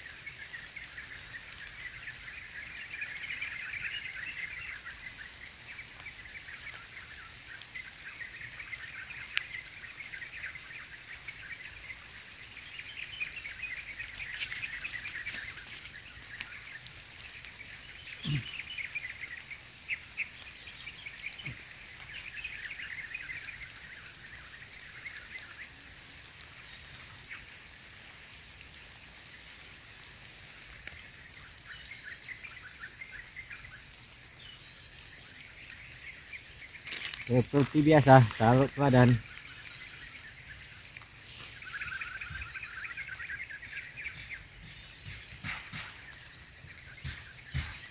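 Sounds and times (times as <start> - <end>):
high rapid chirping chorus: 17.7 - 19.0, 36.9 - 39.3.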